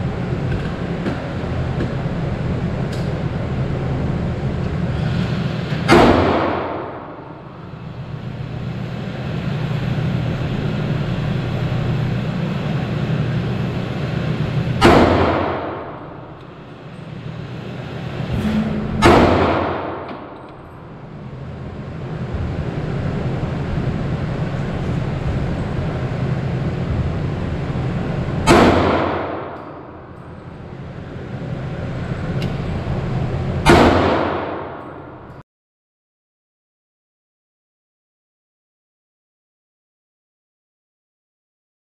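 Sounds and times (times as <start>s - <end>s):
steady low hum: 0.0s - 35.4s
pistol shots indoors: 5.8s - 7.5s, 14.8s - 16.4s, 19.0s - 20.9s, 28.4s - 30.9s, 33.6s - 35.4s.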